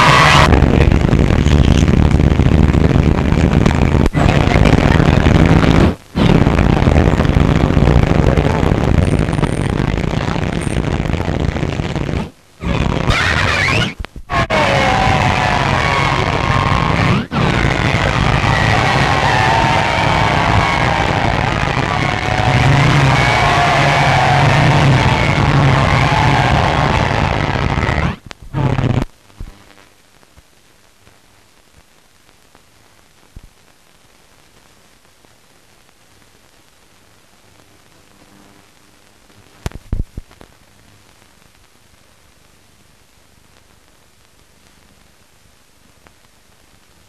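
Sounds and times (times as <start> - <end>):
crowd cheering and shouting: 0.0 - 0.5, 13.1 - 28.2
faint film soundtrack hiss: 0.0 - 47.0.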